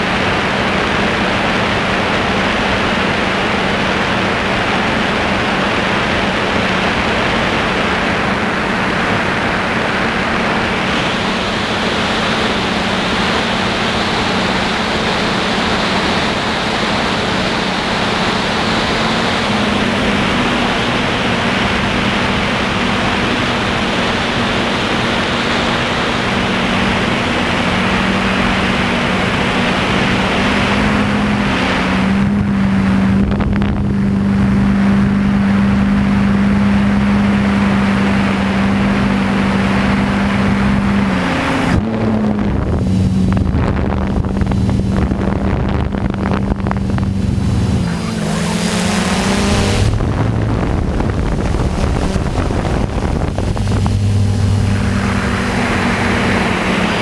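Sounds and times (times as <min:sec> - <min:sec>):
drone motors humming: 0:00.0 - 0:57.0.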